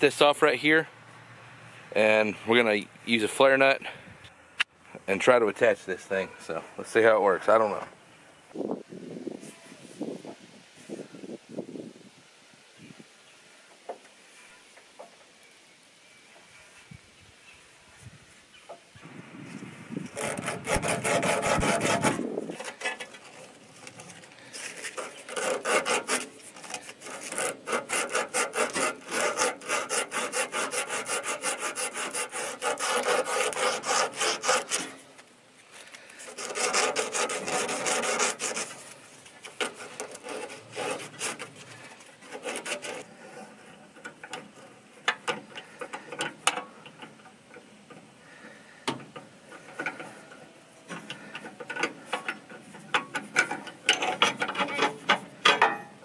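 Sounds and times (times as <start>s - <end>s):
light clicks and scrapes: 19.5s - 30.2s
abrasive cloth rubbing steel tube: 20.0s - 35.1s, 36.2s - 39.0s, 39.6s - 44.0s.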